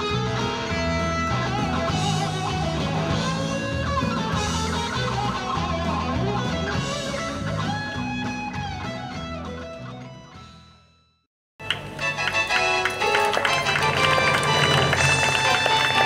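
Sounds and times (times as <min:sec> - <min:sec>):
steady bass line: 0:00.0 - 0:10.3
guitar-led song: 0:00.0 - 0:10.6.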